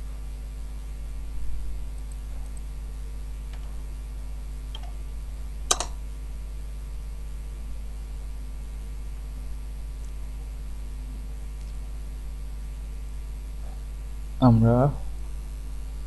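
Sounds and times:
computer keyboard keystrokes: 5.7s - 6.0s.

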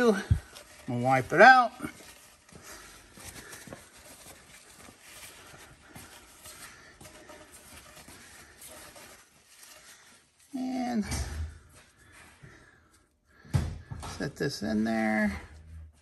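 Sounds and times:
rag rubbing and rustling: 0.0s - 12.8s.

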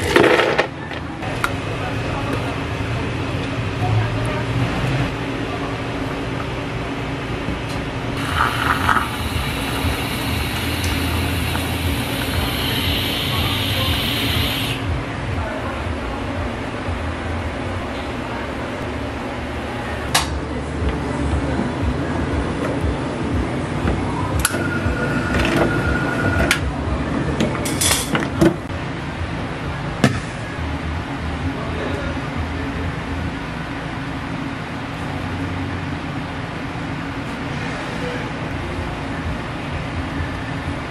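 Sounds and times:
low machine hum: 0.7s - 40.9s
cream siphon spurts: 8.2s - 14.8s
machine whine: 8.2s - 15.1s, 24.2s - 27.1s.

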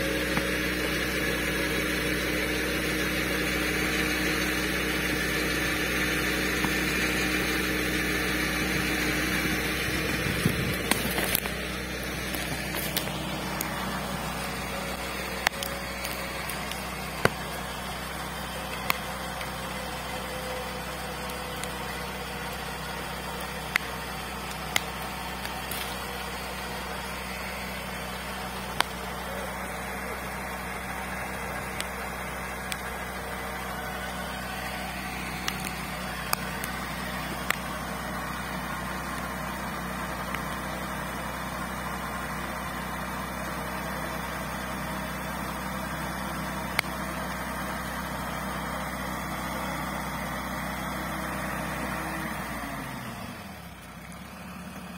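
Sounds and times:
vehicle engine running: 0.0s - 54.9s
sharp clicks: 35.3s - 36.8s.

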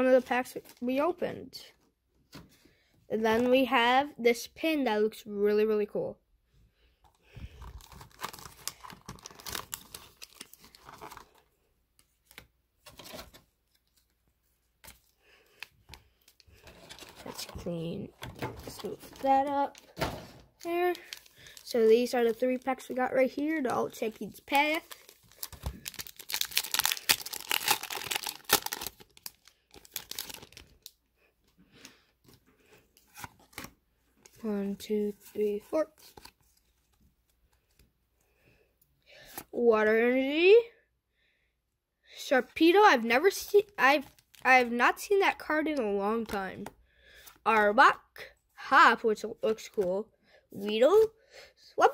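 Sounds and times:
foil wrappers crinkling: 7.5s - 11.4s, 20.6s - 30.9s.

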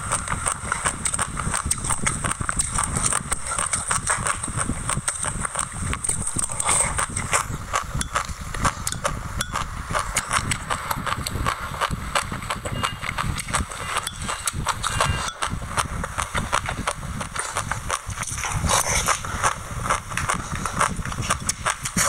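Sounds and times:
chewing crunchy seeds: 0.0s - 22.0s
spoon scraping glass mug: 13.8s - 15.4s.

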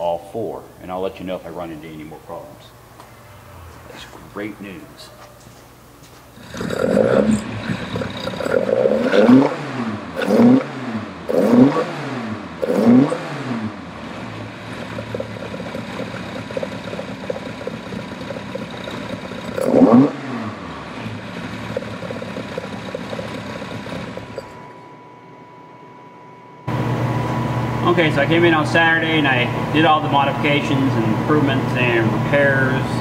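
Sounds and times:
car engine idling and revving: 6.4s - 24.6s.

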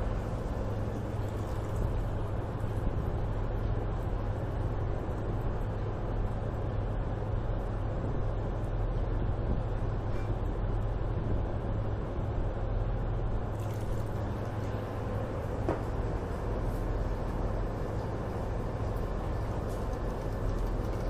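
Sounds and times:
ship engines droning: 0.0s - 21.0s.

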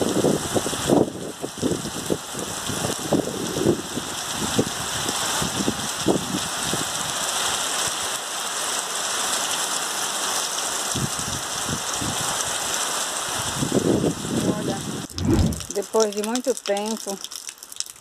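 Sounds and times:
heavy rain: 0.0s - 18.0s
low thumps: 15.1s - 15.7s.

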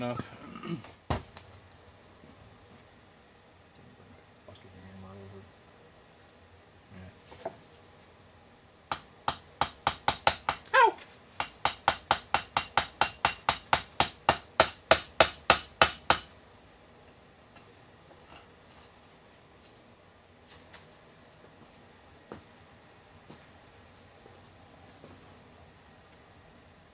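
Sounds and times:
hammer striking steel: 11.4s - 16.3s.

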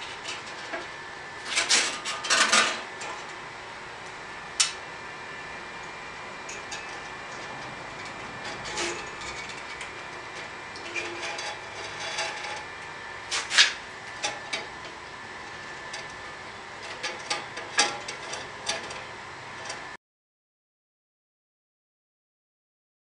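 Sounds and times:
bandsaw blade clicks and scrapes: 13.3s - 14.4s.

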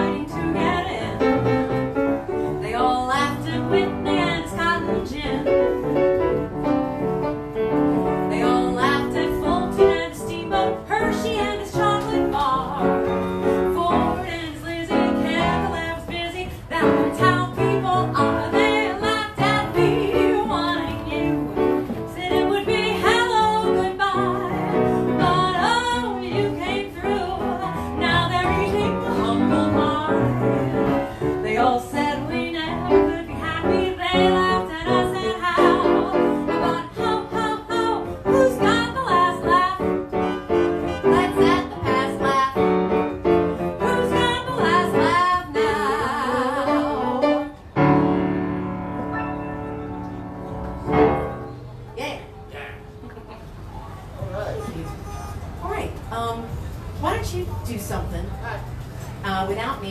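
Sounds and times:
woman singing: 0.0s - 6.1s, 8.0s - 47.6s
grand piano: 0.0s - 54.4s.

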